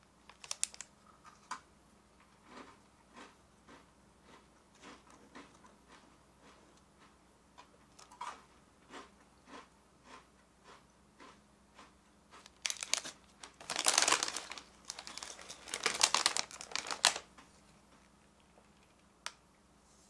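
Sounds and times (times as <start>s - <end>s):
plastic snack bag crinkling: 0.2s - 0.9s, 12.4s - 17.4s.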